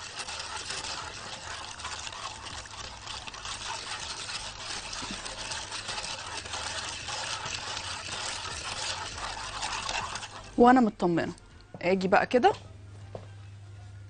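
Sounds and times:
sugar crunching against pot: 0.0s - 11.2s
whisk swishing in a pot: 0.0s - 11.4s.

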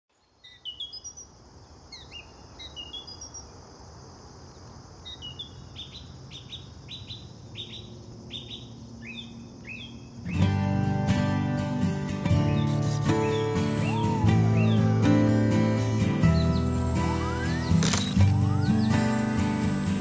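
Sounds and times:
small birds chirping: 0.1s - 3.7s, 4.4s - 10.8s, 12.1s - 20.0s
high-pitched insect drone: 12.7s - 20.0s.

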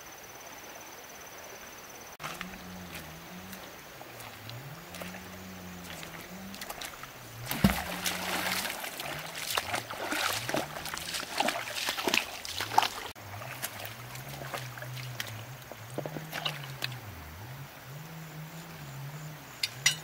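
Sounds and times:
footsteps splashing through water: 2.2s - 17.1s
low hum: 2.2s - 20.0s.

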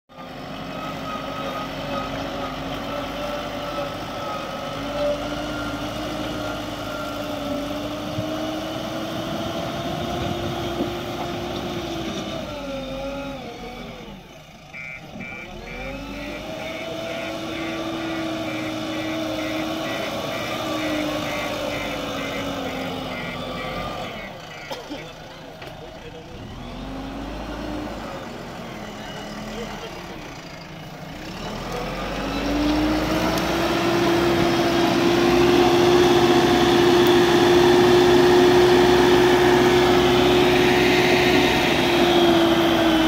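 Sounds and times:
diesel engine running under load: 0.1s - 43.0s
high-pitched beeping: 14.8s - 24.8s.

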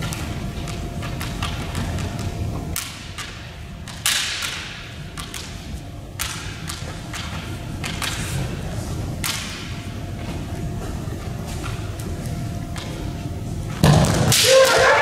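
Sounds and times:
bamboo swords clacking: 2.8s - 8.3s.

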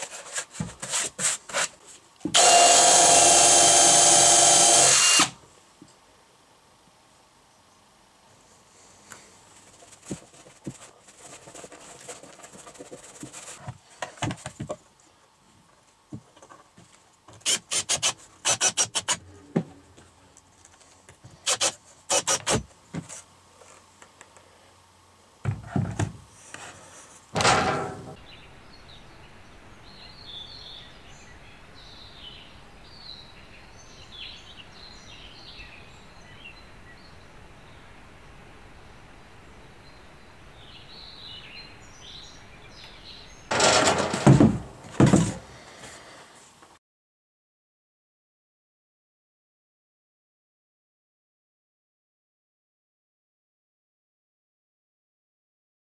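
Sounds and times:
cordless drill driving screws: 2.4s - 5.4s
heavy thumps: 27.4s - 28.2s, 43.5s - 45.5s.

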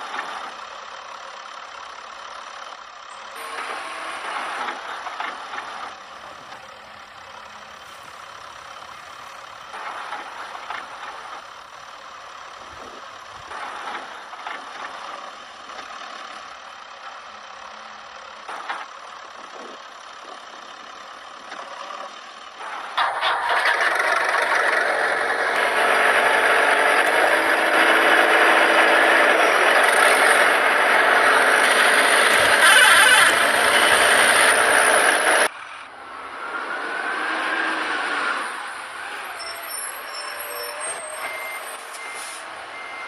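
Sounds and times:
toy truck wheels crunching on dirt: 3.3s - 16.6s, 21.4s - 35.6s.

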